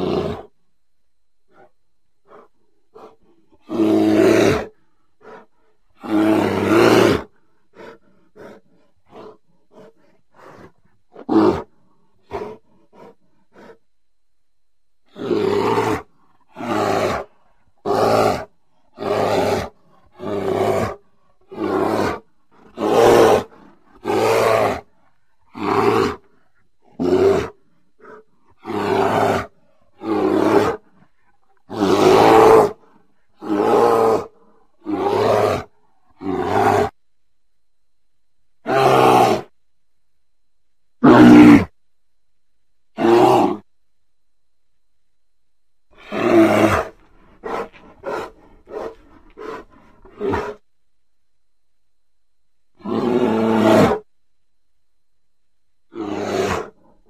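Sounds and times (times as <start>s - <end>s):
bear roaring: 0.0s - 0.6s, 1.5s - 13.8s, 15.0s - 37.0s, 38.6s - 39.5s, 41.0s - 41.8s, 43.0s - 43.7s, 45.9s - 50.6s, 52.7s - 54.1s, 55.9s - 57.0s.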